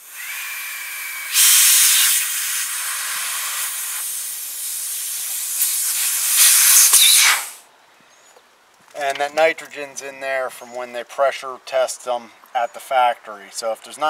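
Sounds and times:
gas hissing from pipe: 0.0 - 7.6.

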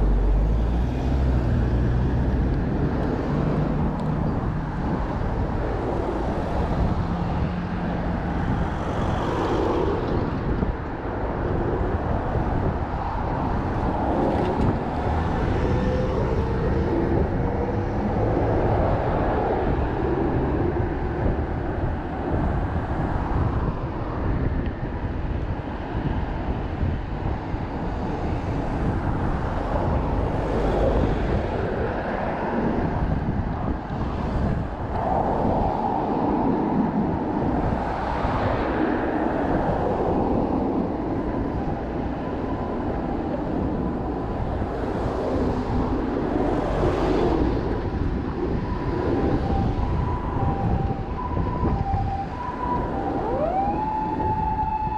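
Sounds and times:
road traffic passing: 0.0 - 54.9
wind rumbling on microphone: 0.0 - 54.9
siren: 14.1 - 21.8, 40.8 - 54.9.

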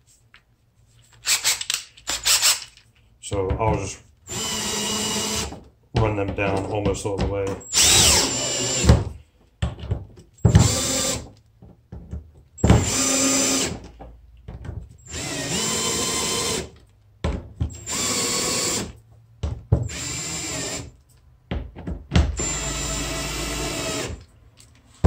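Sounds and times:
cordless drill driving screws: 4.3 - 5.6, 7.7 - 9.0, 10.5 - 11.3, 12.6 - 13.8, 15.1 - 16.8, 17.7 - 19.0, 19.8 - 20.9, 22.4 - 24.2.

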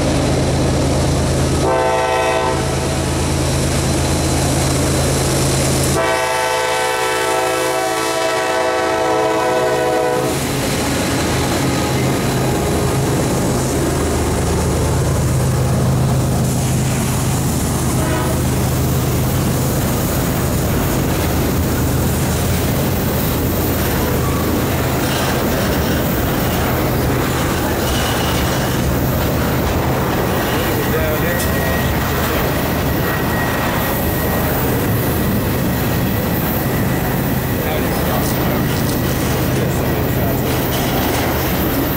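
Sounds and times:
train wheels rumbling on rails: 0.0 - 41.9
locomotive horn: 1.6 - 3.1, 5.9 - 10.4, 17.9 - 18.6.

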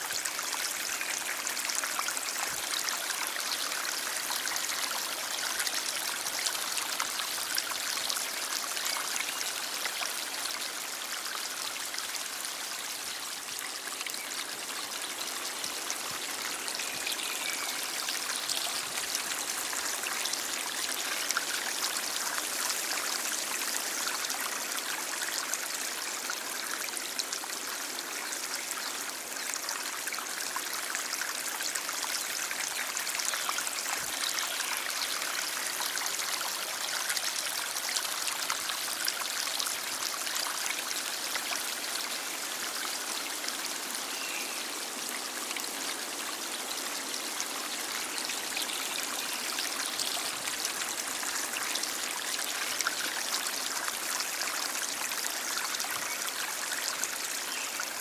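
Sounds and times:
stream water rushing: 29.0 - 58.0.

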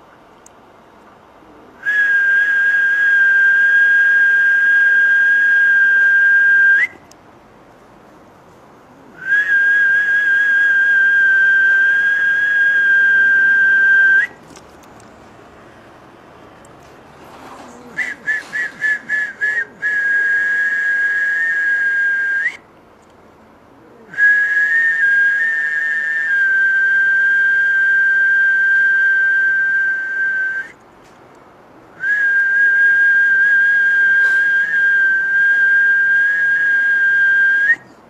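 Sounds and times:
high whistled tone: 1.8 - 7.0, 9.2 - 14.4, 18.0 - 22.6, 24.1 - 30.8, 32.0 - 38.0.

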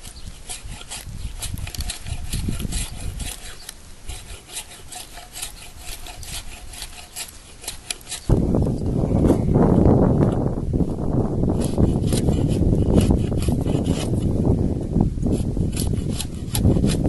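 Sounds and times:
axe blade scraping wooden stick: 0.0 - 8.4, 11.5 - 14.4, 15.2 - 17.0
low rushing rumble: 8.3 - 11.6.

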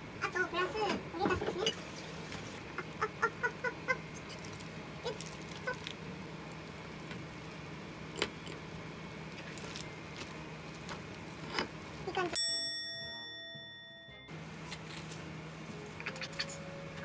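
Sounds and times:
faint steady hum: 0.0 - 17.0
lettuce leaves tearing: 4.2 - 6.0.

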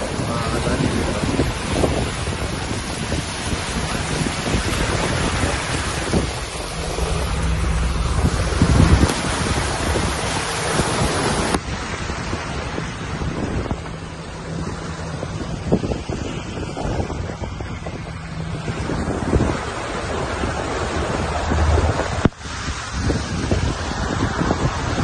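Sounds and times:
floodwater rushing: 0.0 - 25.0
wind buffeting microphone: 0.0 - 25.0.

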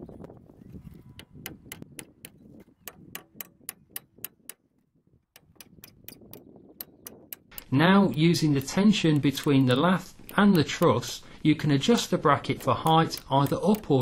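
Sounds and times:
quiet even ticking: 5.4 - 14.0.

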